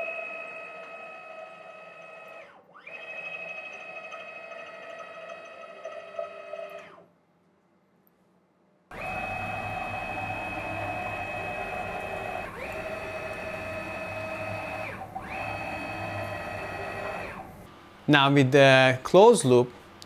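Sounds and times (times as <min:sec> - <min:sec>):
stepper motors whining: 0:08.9 - 0:17.7.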